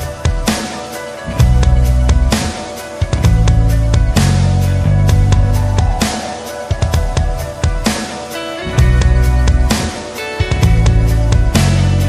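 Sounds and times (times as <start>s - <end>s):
steady drum beat: 0.0s - 12.0s
bass line: 1.3s - 2.4s, 3.2s - 6.1s, 8.7s - 9.9s, 10.5s - 12.0s.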